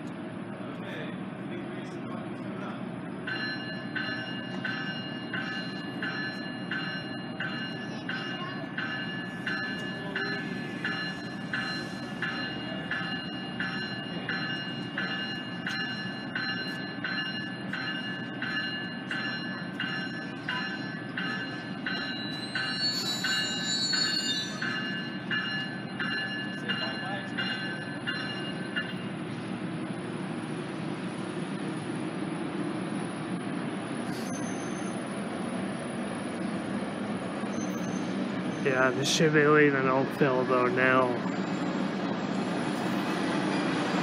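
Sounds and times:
railway bell ringing: 0:01.8 - 0:44.0
short high squeal: 0:34.0 - 0:35.1, 0:37.4 - 0:38.6.

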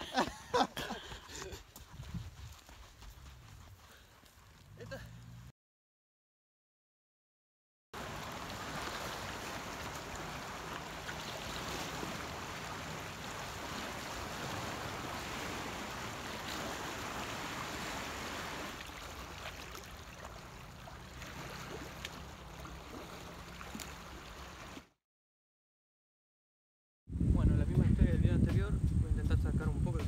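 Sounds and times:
surf washing over rocks: 0:08.0 - 0:20.2.

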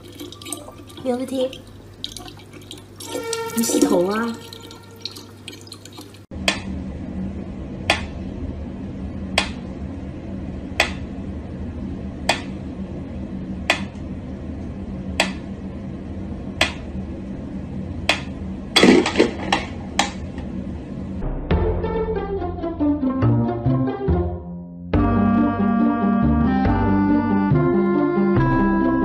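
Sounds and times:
steady low hum: 0:06.2 - 0:22.6.

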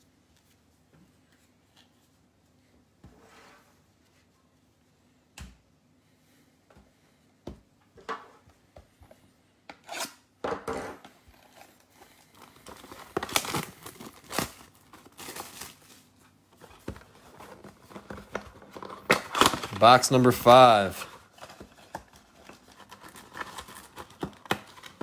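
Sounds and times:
wrapping crinkling and tearing: 0:11.4 - 0:25.0.

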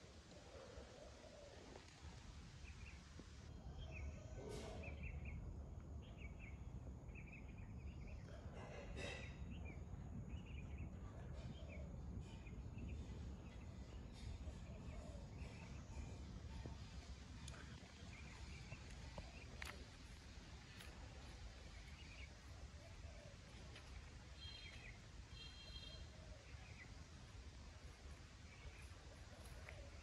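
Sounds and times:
steady low rumble: 0:09.5 - 0:25.4.

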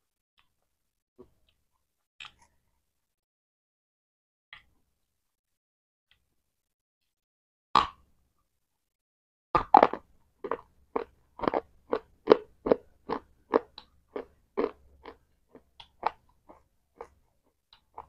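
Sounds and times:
crunchy chewing: 0:09.6 - 0:18.0.

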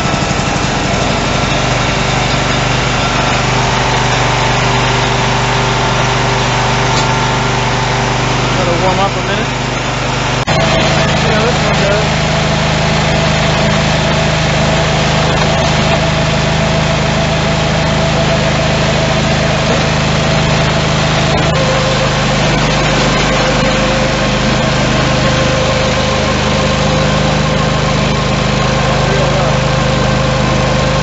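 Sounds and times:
steady whine: 0:00.0 - 0:31.0
tractor engine running: 0:00.0 - 0:31.0.

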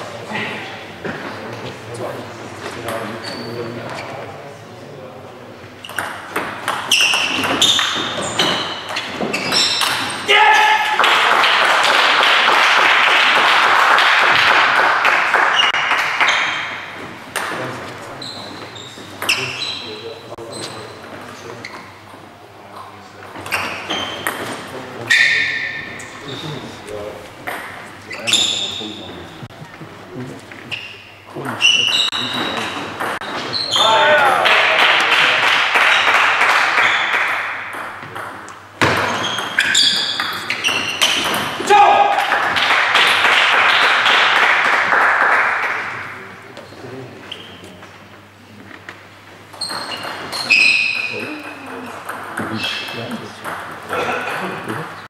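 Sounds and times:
ping pong ball clicking and pinging: 0:05.8 - 0:10.1, 0:31.4 - 0:33.4, 0:36.8 - 0:41.6, 0:49.5 - 0:54.0
table tennis balls bouncing: 0:05.8 - 0:19.8, 0:23.2 - 0:29.7, 0:31.3 - 0:46.0, 0:49.0 - 0:55.0
applause: 0:10.9 - 0:16.3, 0:34.4 - 0:37.4, 0:42.2 - 0:46.3.

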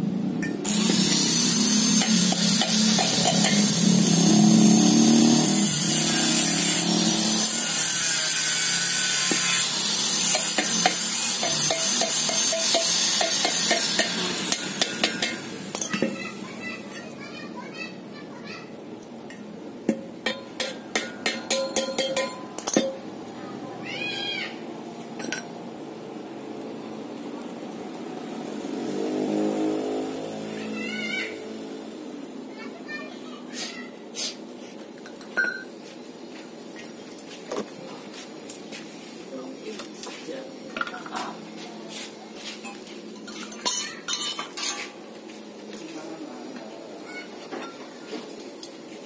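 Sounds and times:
metal tubes scraping together: 0:00.7 - 0:16.2
vehicle engine passing: 0:02.8 - 0:07.5, 0:26.9 - 0:32.5.

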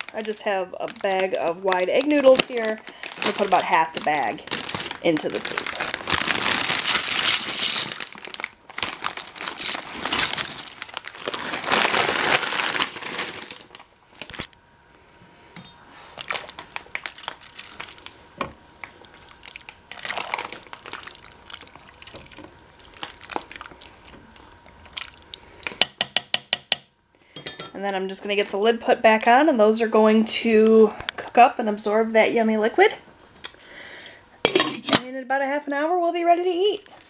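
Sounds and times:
plastic bag crinkling: 0:00.0 - 0:14.6, 0:16.0 - 0:25.8.

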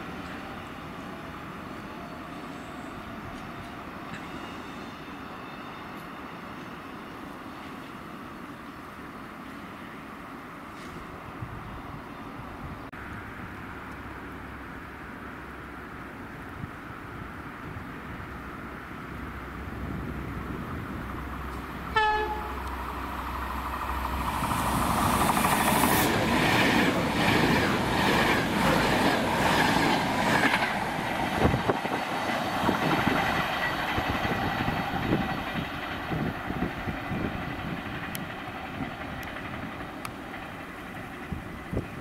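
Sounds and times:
train rushing past: 0:19.2 - 0:42.0
wheels clacking on rails: 0:21.3 - 0:42.0
train horn blast: 0:21.9 - 0:22.7.

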